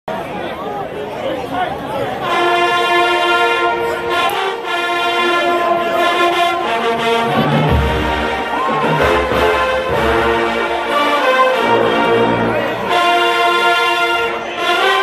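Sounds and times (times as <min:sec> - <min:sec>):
marching band brass chord: 0:02.2 - 0:15.0
drums: 0:07.2 - 0:10.6.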